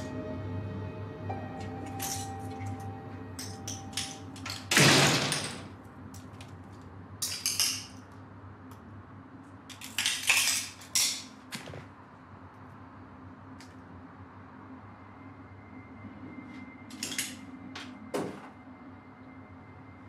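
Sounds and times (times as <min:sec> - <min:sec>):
low steady hum: 0:00.0 - 0:20.0
clinks and rustles: 0:01.8 - 0:02.8, 0:16.9 - 0:17.5.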